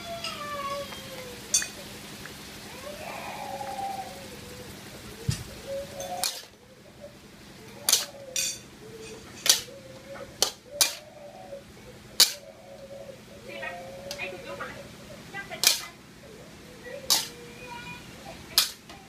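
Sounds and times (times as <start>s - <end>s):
metal ladle clanking on wok: 6.2s - 6.5s, 7.9s - 8.6s, 10.4s - 11.1s, 12.2s - 12.4s, 15.6s - 15.8s, 17.1s - 17.3s.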